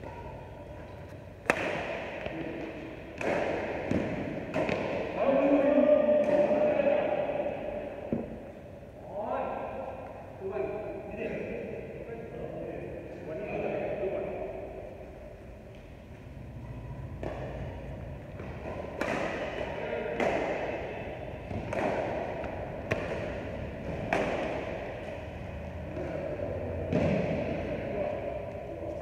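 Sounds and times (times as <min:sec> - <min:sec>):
racket hitting shuttlecock: 0:00.0 - 0:05.5, 0:06.1 - 0:08.6, 0:17.0 - 0:26.1, 0:26.8 - 0:29.0.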